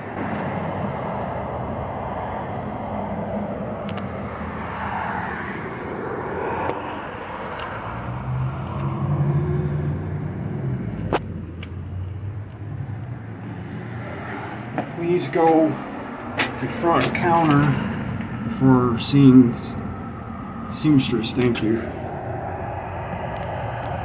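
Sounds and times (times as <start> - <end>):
vehicle engine passing: 0.0 - 24.0
background rush: 12.2 - 24.0.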